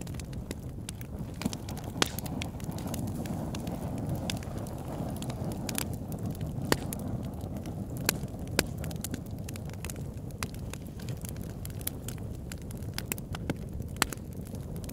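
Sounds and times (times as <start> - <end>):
fire burning with crackles: 0.0 - 14.9
fire popping: 0.0 - 14.9.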